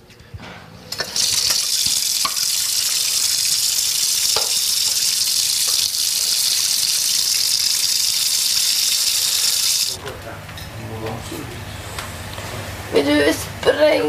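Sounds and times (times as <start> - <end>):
running water: 1.0 - 10.0.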